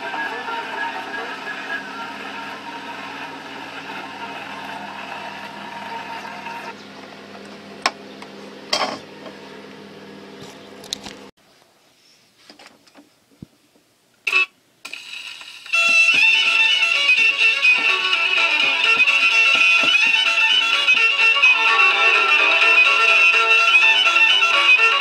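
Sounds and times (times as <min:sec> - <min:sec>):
gramophone record scratchy playback: 0:00.0 - 0:06.7, 0:14.3 - 0:25.0.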